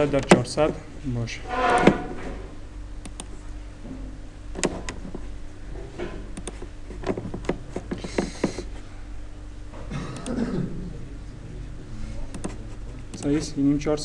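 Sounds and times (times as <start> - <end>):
low hum: 1.2 - 6.4
computer mouse clicking: 3.0 - 3.3, 4.6 - 5.2, 6.3 - 8.7, 12.3 - 13.5.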